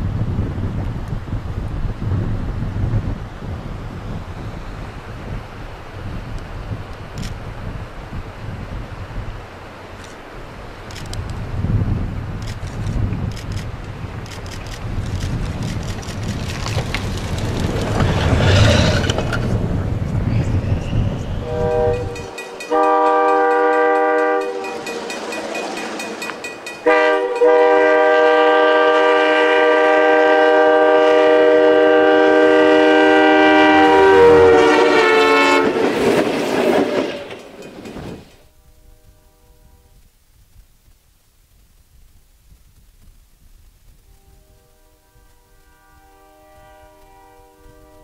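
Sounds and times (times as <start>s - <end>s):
snow-plow train rumbling: 0.0s - 38.6s
locomotive air horn blasts: 21.4s - 25.2s, 26.8s - 36.0s, 38.6s - 40.0s, 44.1s - 48.0s.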